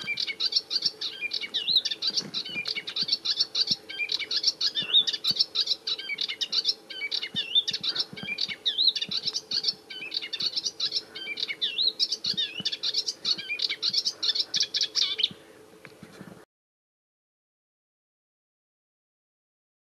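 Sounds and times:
warbler singing: 0.0s - 15.4s.

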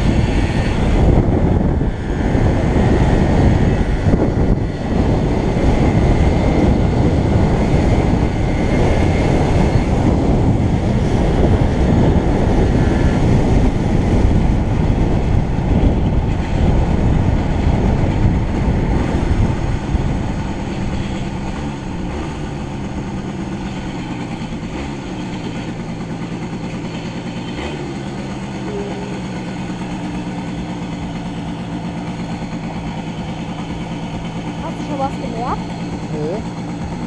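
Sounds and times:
wind rushing over microphone: 0.0s - 26.9s
motorcycle engine idling: 0.0s - 37.0s.

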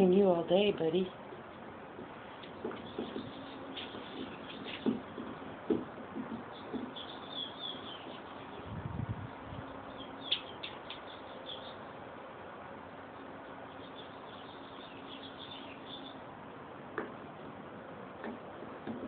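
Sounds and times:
small birds chirping: 0.0s - 5.5s, 6.4s - 12.0s, 12.8s - 16.3s.

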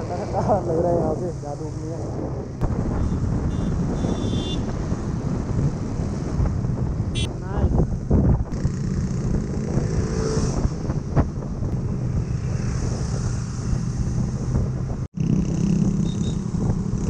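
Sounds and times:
wind and road noise: 0.0s - 17.0s
motorcycle engine running: 15.2s - 17.0s.

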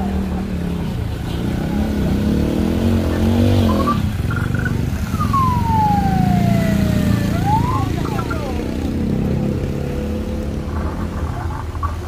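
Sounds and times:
small motorcycle engines revving: 0.0s - 11.5s
whistle-like tone: 3.6s - 8.5s.

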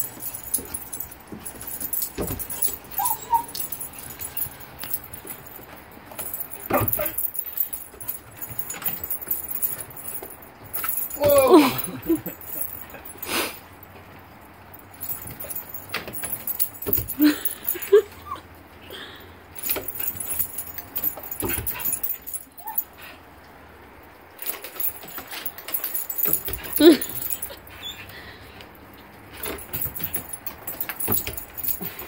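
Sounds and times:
collar tags jingling: 0.0s - 32.0s
dog whining: 1.8s - 4.4s, 6.6s - 7.3s, 10.9s - 12.9s, 26.1s - 28.3s
small dog yips: 3.0s - 3.6s.

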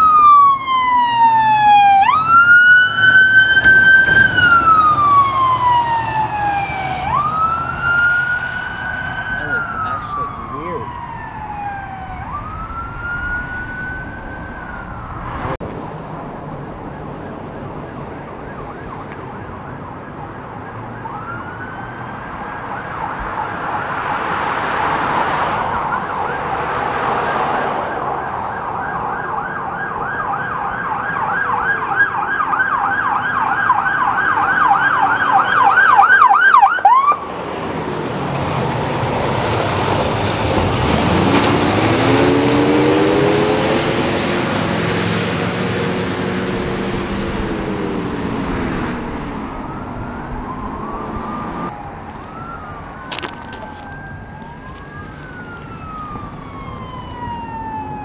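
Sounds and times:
police siren wailing and yelping: 0.0s - 15.6s, 16.5s - 58.0s
heavy vehicle passing: 0.7s - 18.9s, 36.9s - 57.8s.

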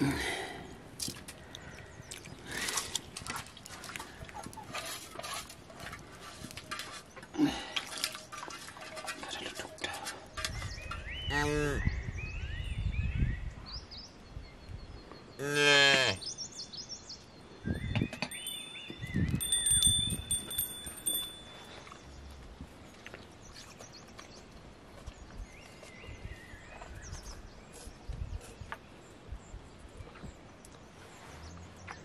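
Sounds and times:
birds chirping: 6.0s - 32.0s.

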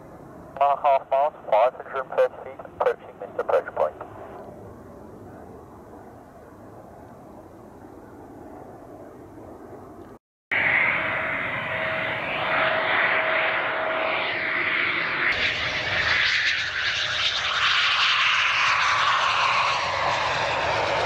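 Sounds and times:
jet engine whine: 0.0s - 21.0s.

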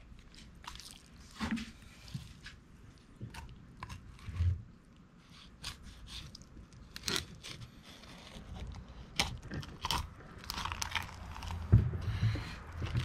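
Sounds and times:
knife cutting through raw fish: 5.3s - 8.8s.

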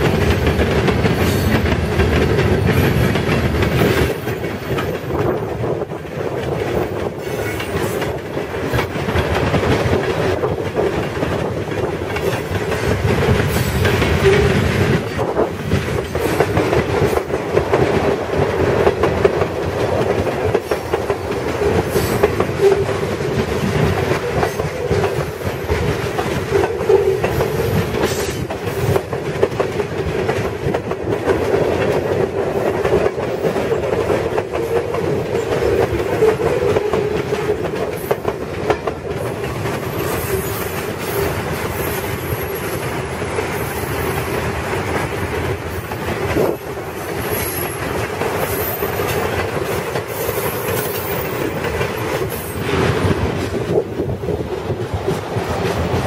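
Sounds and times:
train wheels clickety-clack: 0.0s - 56.0s
wheel squeal: 47.2s - 47.8s.

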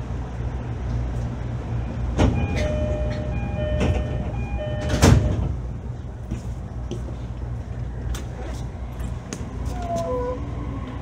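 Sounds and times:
low train rumble: 0.0s - 11.0s
two-tone door chime: 2.4s - 5.5s.

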